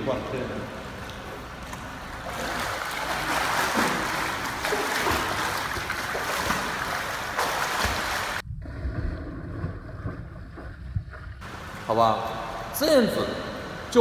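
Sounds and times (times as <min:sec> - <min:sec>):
pool water splashing: 0:00.0 - 0:14.0
muffled underwater rumbling: 0:08.4 - 0:11.6.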